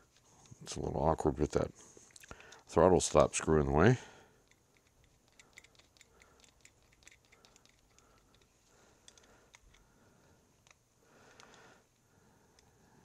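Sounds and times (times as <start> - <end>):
screwdriver metallic clicks: 4.4 - 9.8.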